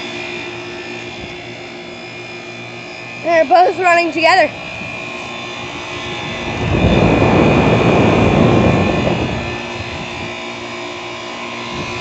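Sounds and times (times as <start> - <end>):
air conditioner compressors humming: 0.0 - 12.0
rush of noise: 5.8 - 10.4.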